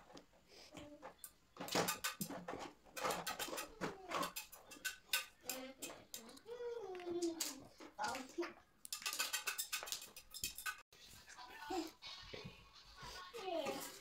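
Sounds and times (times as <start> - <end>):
metal paper fasteners clicking: 1.2 - 6.4, 7.2 - 10.8.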